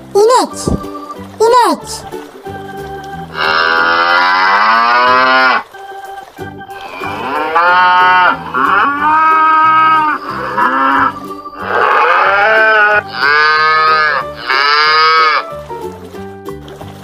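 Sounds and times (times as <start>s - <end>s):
cow mooing: 3.3s - 5.7s, 6.8s - 15.5s.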